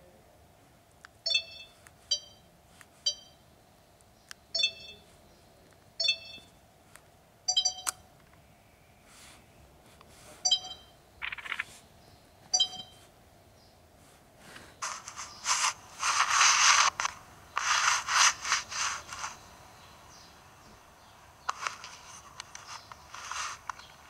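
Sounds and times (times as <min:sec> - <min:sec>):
short electronic beeps: 0:01.2 - 0:03.4, 0:04.5 - 0:05.1, 0:06.0 - 0:06.6, 0:07.5 - 0:08.0, 0:10.4 - 0:11.4, 0:12.5 - 0:13.0
scraping and rubbing noises: 0:14.0 - 0:19.4, 0:21.4 - 0:24.0.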